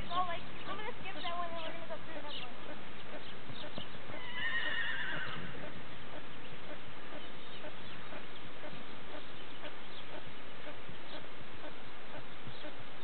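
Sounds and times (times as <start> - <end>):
soft regular hoofbeats: 0.0 - 13.0
horse whinnying: 4.2 - 5.7.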